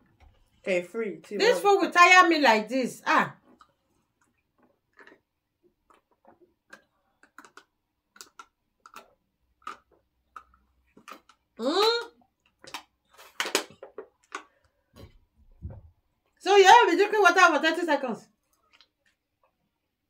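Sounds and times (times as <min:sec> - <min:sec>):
people gulping water: 0:03.4 - 0:16.0.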